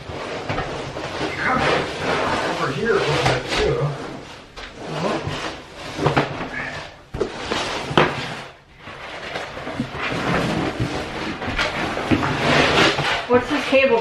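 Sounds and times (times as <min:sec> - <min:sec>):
sheet flooring crackling and rustling: 0:00.0 - 0:14.0.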